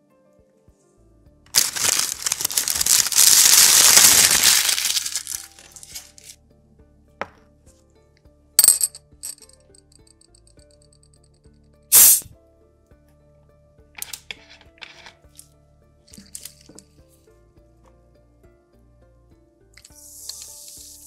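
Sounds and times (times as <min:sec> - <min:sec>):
paper crumpling and rustling: 0:01.5 - 0:06.4.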